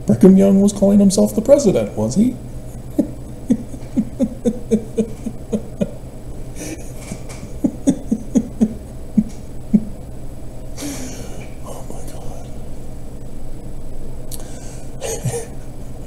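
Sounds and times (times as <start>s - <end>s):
man chuckling: 2.7s - 10.0s, 14.3s - 15.8s.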